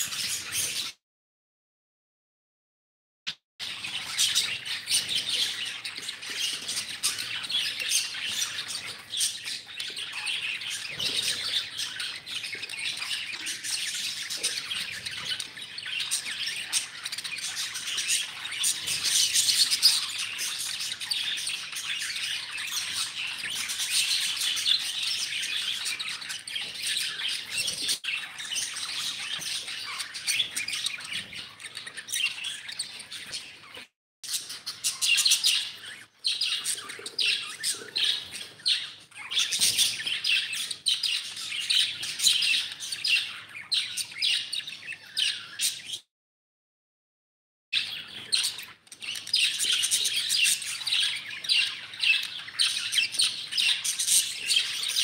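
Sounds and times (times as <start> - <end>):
budgerigars chattering: 34.3 - 45.9.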